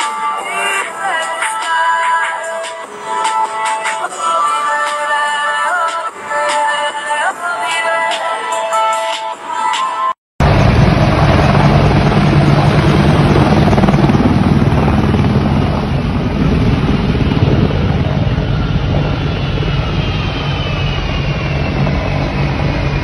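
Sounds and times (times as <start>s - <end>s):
jet engines roaring: 10.4s - 23.0s
faint whines sliding in pitch: 18.3s - 23.0s.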